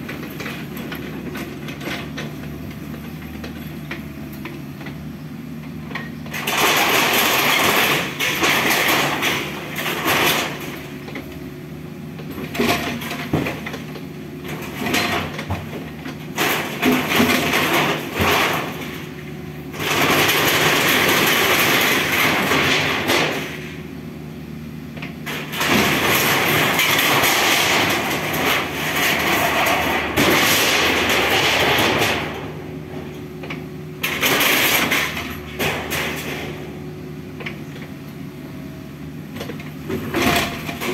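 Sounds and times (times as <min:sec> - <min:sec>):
diesel engine running: 0:00.0 - 0:40.9
metal roofing crashing and scraping: 0:06.3 - 0:11.2, 0:12.4 - 0:23.8, 0:25.2 - 0:33.1, 0:34.0 - 0:36.8, 0:39.5 - 0:40.9.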